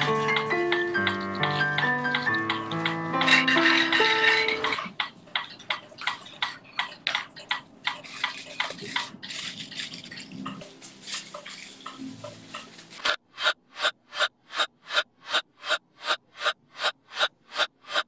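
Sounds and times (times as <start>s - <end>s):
scratching rustling clicks: 0.0s - 13.6s.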